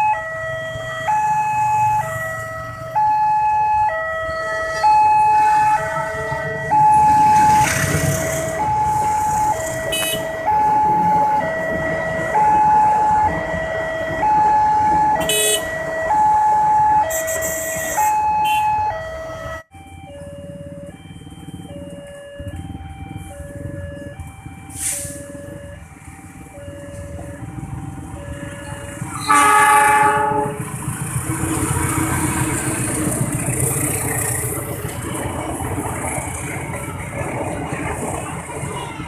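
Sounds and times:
level-crossing two-tone alarm: 0.0s - 30.2s
train rolling past: 26.0s - 39.0s.

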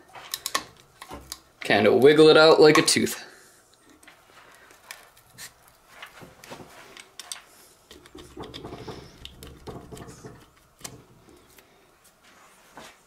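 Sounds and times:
clicks and creaks of wood and metal: 0.0s - 2.1s, 3.7s - 11.7s.

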